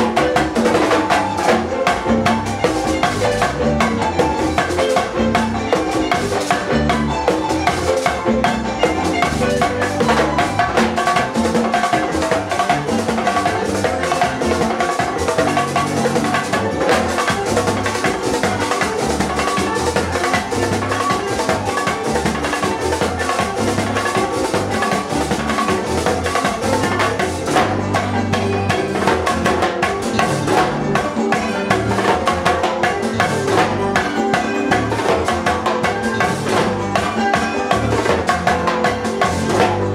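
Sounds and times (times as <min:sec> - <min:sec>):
drums and percussion: 0:00.0 - 0:39.9
live latin band music: 0:00.0 - 0:39.9.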